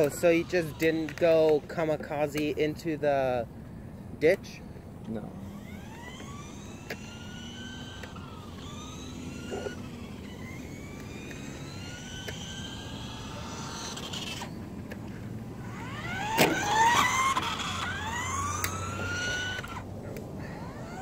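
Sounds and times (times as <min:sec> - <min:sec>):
electric motors whining: 0:00.0 - 0:21.0
sharp tick: 0:02.3 - 0:02.5, 0:18.6 - 0:18.8.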